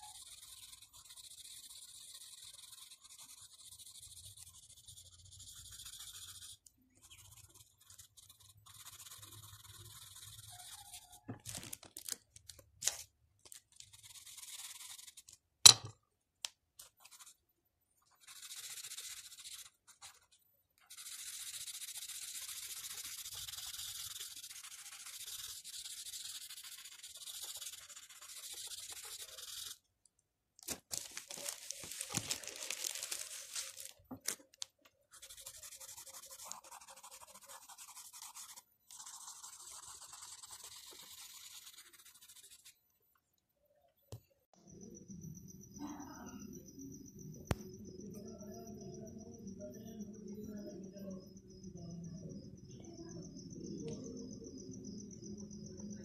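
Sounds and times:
pencil scratching on paper: 0.0s - 11.4s, 13.8s - 15.4s, 16.8s - 17.4s, 18.0s - 29.8s, 35.1s - 42.8s.

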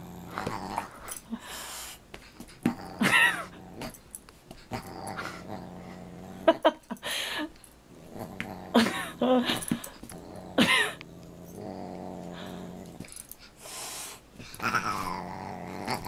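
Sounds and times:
dog growling: 0.0s - 1.2s, 2.6s - 4.0s, 4.7s - 6.8s, 7.9s - 13.3s, 14.5s - 16.0s.

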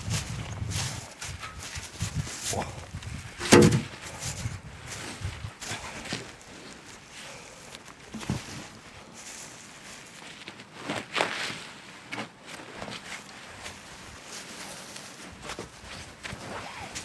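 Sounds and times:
clothing rustling: 3.9s - 17.0s.

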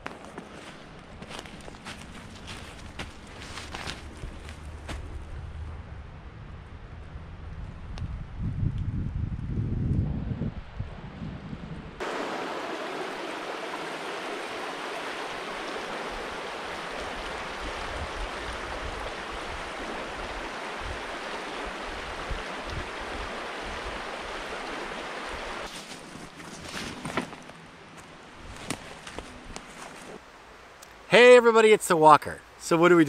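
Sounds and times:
rustling in dry leaves: 0.5s - 5.6s, 25.5s - 30.2s
stream running over stones: 12.0s - 26.3s.

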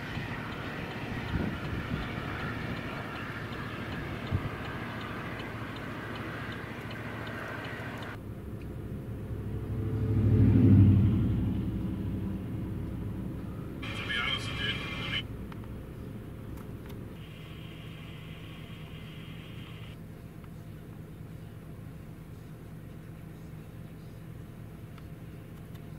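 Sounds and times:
strong wind roaring: 0.0s - 5.3s
vehicle passing rumble: 0.0s - 20.0s.

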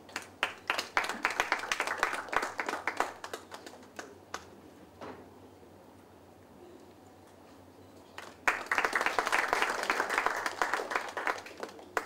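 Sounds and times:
small audience clapping: 0.1s - 4.5s, 8.2s - 12.0s.

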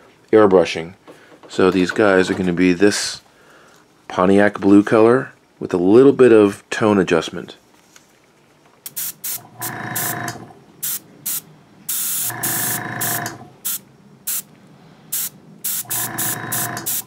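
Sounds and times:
airbrush spraying hiss: 8.9s - 9.4s, 10.0s - 10.2s, 10.8s - 14.5s, 15.1s - 17.0s
airbrush buzzing tone: 8.9s - 14.4s, 15.1s - 17.0s.

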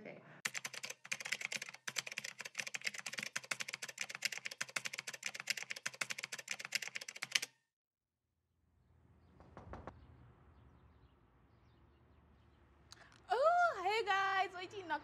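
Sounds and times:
rapid keyboard typing: 0.4s - 7.6s.

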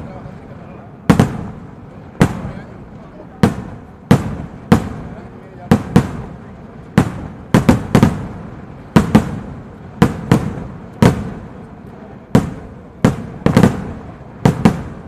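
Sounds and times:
rockets exploding with echo: 0.0s - 15.0s.

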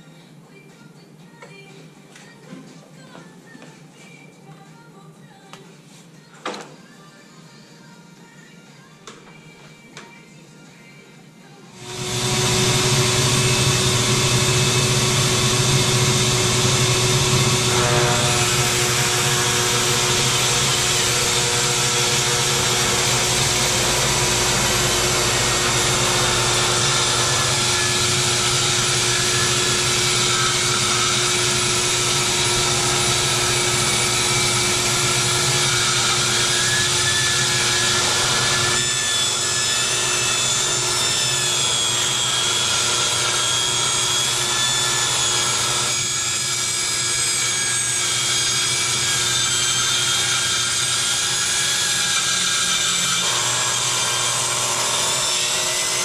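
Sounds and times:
vacuum cleaner running: 11.7s - 56.0s
circular saw cutting wood: 11.8s - 56.0s.

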